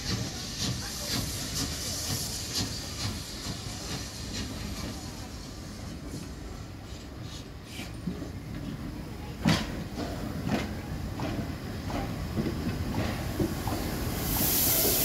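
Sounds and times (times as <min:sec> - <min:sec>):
locomotive exhaust puffs: 0:00.0 - 0:08.0, 0:11.2 - 0:15.0
steam hissing: 0:00.0 - 0:08.8, 0:09.5 - 0:15.0.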